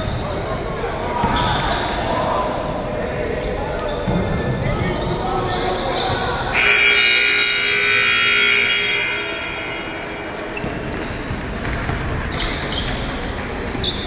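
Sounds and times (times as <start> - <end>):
echoing hall background: 0.0 - 14.0
scoreboard buzzer: 6.6 - 9.6.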